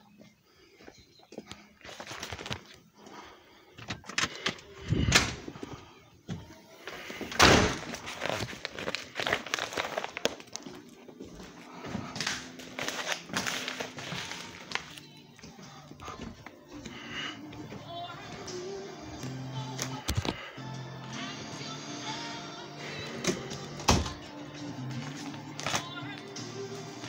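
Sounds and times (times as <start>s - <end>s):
packages rustling and knocking: 1.8s - 2.8s, 6.3s - 17.0s
footsteps: 3.8s - 18.6s
door thudding shut: 7.4s - 7.9s.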